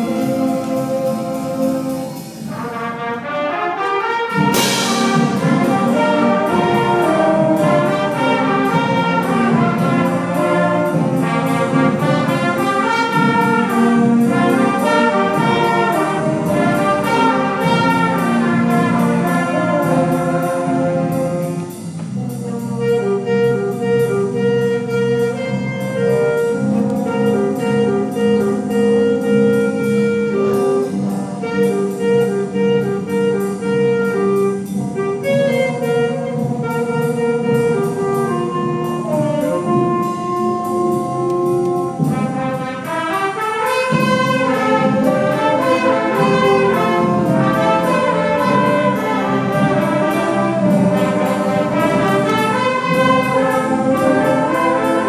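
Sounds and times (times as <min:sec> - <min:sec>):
concert band playing: 0:00.0 - 0:55.0
loud percussion crash: 0:04.4 - 0:07.4.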